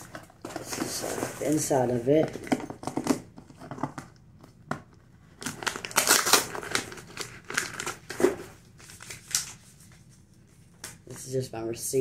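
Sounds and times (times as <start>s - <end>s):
plastic pouch crinkling: 5.4s - 8.1s.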